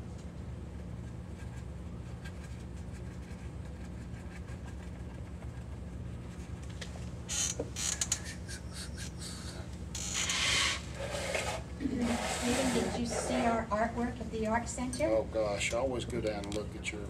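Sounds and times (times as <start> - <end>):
steady low hum: 0.0 - 17.0
paintbrush scrubbing paper: 1.3 - 6.6, 10.4 - 13.7.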